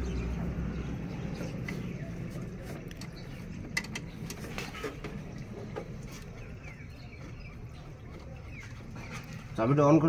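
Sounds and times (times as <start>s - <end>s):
tools tapping on engine: 2.7s - 7.5s.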